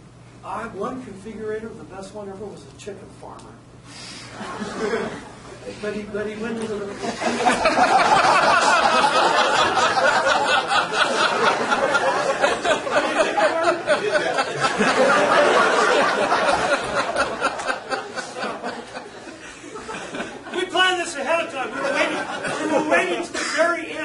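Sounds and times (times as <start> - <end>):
lecture speech: 0.4 - 3.7, 5.6 - 7.5, 20.4 - 24.0
audience laughing: 4.3 - 5.8, 6.9 - 20.7, 21.6 - 23.3.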